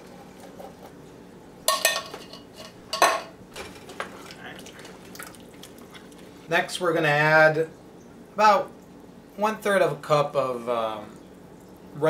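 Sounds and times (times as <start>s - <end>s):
utensils clanking on metal pot: 1.7s - 4.0s.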